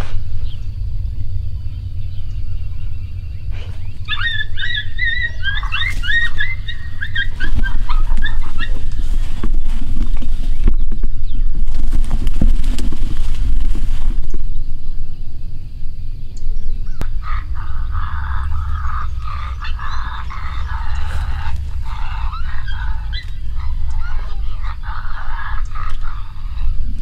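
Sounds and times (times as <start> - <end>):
steady low rumble: 0.0 - 27.0
dog yipping and barking: 4.1 - 9.0, 17.2 - 26.2.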